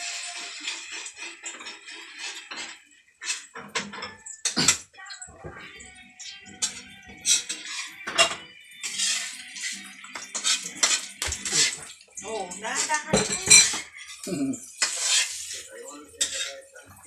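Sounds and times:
metal spatula scraping frying pan: 0.0s - 4.9s, 5.6s - 17.0s
dishes and utensils clinking: 0.0s - 17.0s.

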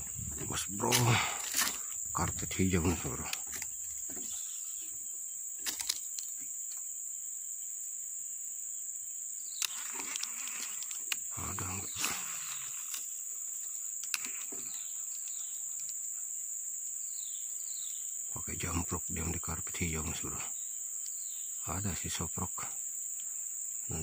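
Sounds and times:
rustles: 0.0s - 7.0s, 9.5s - 16.6s
high-pitched insect drone: 0.0s - 24.0s.

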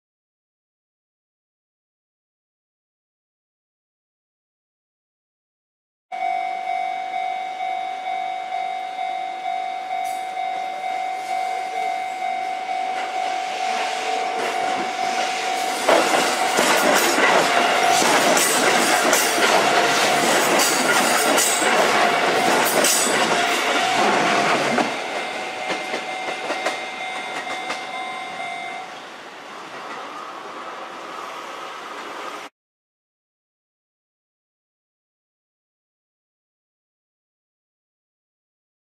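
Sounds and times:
level-crossing bell dinging: 6.1s - 29.1s
train wheels clattering: 13.0s - 28.6s.

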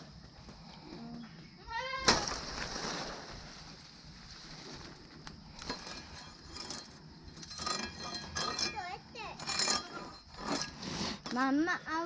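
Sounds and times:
fronds rustling: 1.9s - 7.0s.

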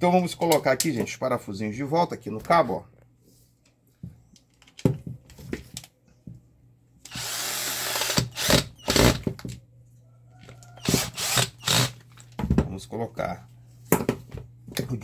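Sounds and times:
cordless drill driving screw: 7.1s - 9.2s, 10.8s - 12.0s.

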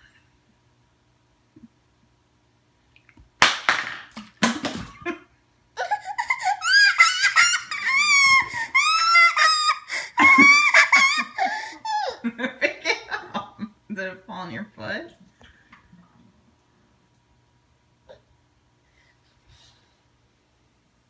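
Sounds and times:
toddler squealing: 5.8s - 12.1s.

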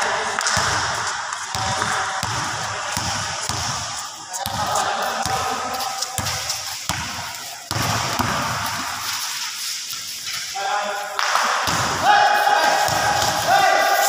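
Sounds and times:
basketball bouncing on concrete: 0.4s - 3.8s, 6.2s - 8.8s.

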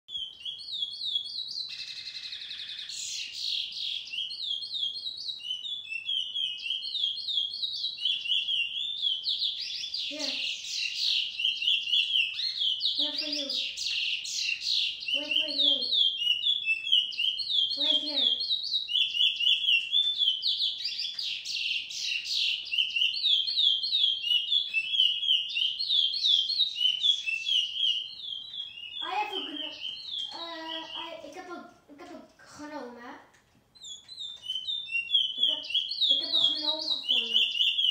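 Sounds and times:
finch singing warbling song: 0.1s - 31.6s, 33.8s - 37.9s
bird singing fast high notes: 26.7s - 31.3s.

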